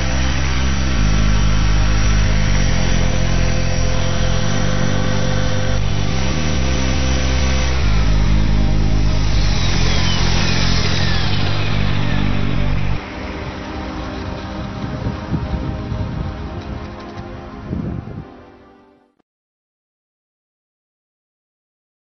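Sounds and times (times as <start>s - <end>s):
motor whine spooling down: 0.0s - 17.1s
rc helicopter rotors: 0.0s - 17.3s.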